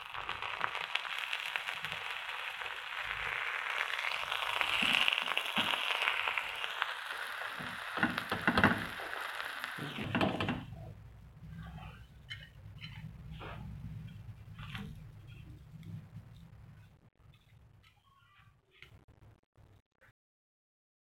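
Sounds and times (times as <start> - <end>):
sandwiches sizzling in grill pan: 0.0 - 10.4
spatula scraping pan: 11.5 - 15.7.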